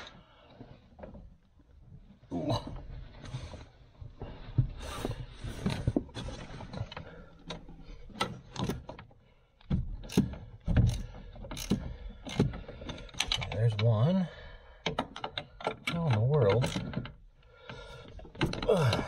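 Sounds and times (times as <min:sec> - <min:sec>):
hand ratchet clicking: 0:10.0 - 0:13.9.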